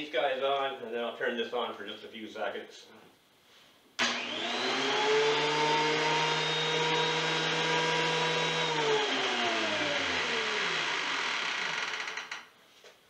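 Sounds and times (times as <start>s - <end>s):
thickness planer whining: 4.0s - 12.3s.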